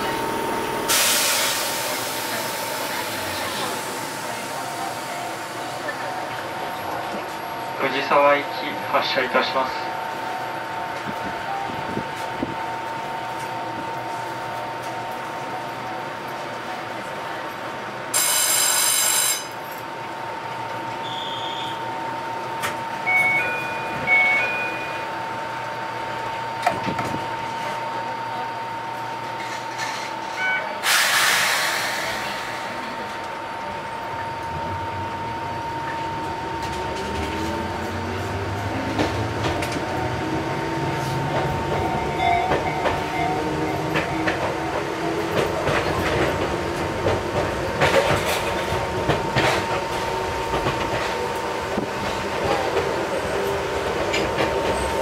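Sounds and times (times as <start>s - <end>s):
air hiss: 30.8s - 32.8s
wheels clacking over rails: 36.6s - 55.0s.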